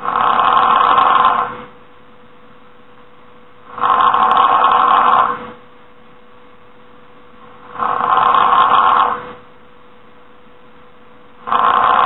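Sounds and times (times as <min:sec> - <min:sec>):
person snoring loudly: 0:00.0 - 0:01.5, 0:03.7 - 0:05.4, 0:07.7 - 0:09.4, 0:11.4 - 0:12.0.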